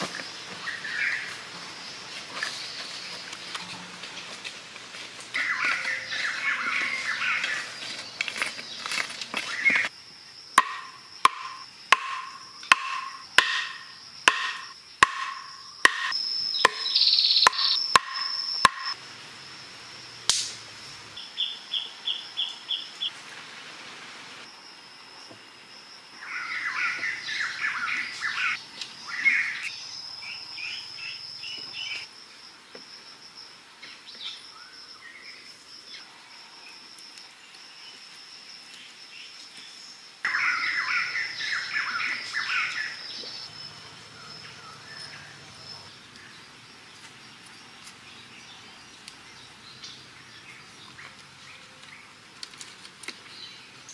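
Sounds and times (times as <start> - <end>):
birds chirping: 0.0 - 4.7, 5.3 - 9.9, 10.6 - 19.0, 26.2 - 32.1, 38.8 - 52.2
insect drone: 0.0 - 53.9
wooden stake being pounded: 10.6 - 18.9.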